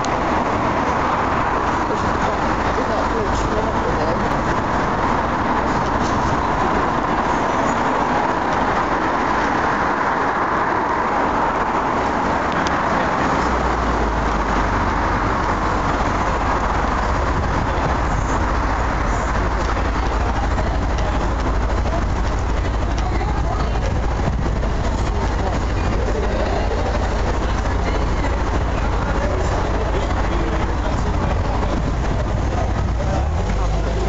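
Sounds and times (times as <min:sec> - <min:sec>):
outdoor background noise: 0:00.0 - 0:34.0
low rumble: 0:13.4 - 0:34.0.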